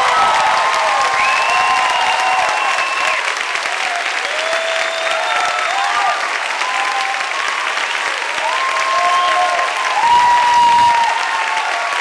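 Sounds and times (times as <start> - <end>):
audience applauding: 0.0 - 12.0
drawn-out cheers: 0.0 - 12.0.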